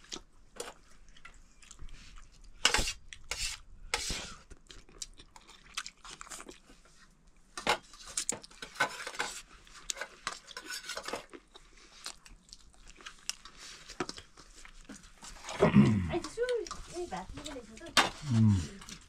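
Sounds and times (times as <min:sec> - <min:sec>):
dishes and cutlery clinking: 0:07.6 - 0:11.3.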